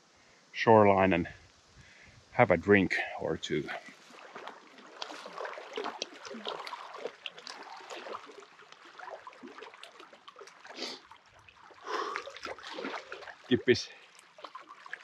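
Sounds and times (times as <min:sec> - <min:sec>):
water lapping at shore: 0:03.5 - 0:15.0
water splashing: 0:03.6 - 0:15.0
small clicks and rustles: 0:03.9 - 0:08.9.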